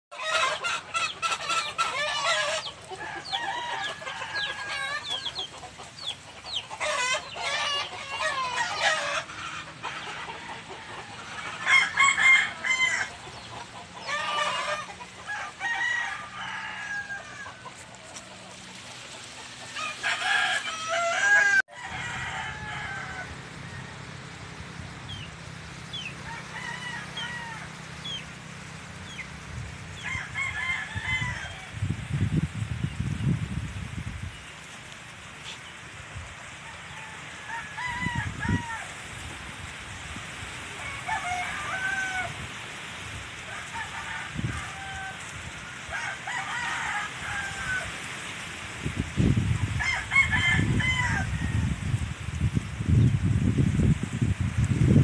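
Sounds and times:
roosters crowing: 0.1 - 33.0, 34.4 - 52.7
chickens clucking: 0.1 - 37.4.

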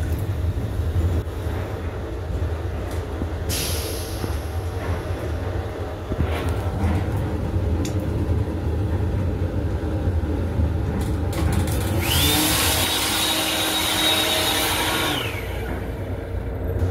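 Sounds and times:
train running rumble: 0.0 - 16.9
hand dryer blowing: 11.7 - 16.1.

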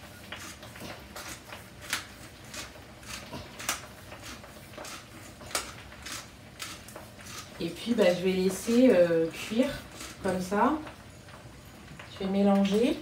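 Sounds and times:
pepper mill grinding: 0.3 - 10.5.

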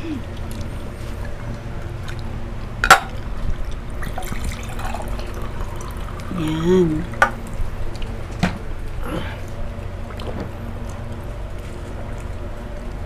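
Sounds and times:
person humming: 0.0 - 0.3, 6.3 - 7.2, 9.0 - 9.5
water poured into a cup: 3.9 - 6.6.

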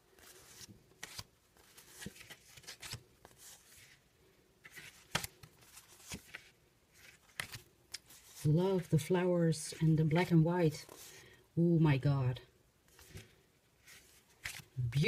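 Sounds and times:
paper cards rustling: 0.0 - 9.0, 10.8 - 11.3, 12.9 - 15.0.

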